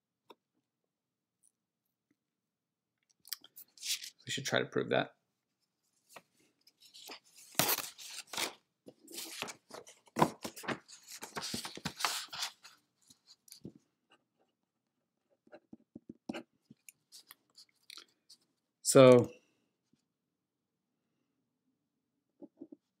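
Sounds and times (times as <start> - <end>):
paper rustling: 6.0 - 13.8
pen tapping and scratching paper: 15.4 - 16.5.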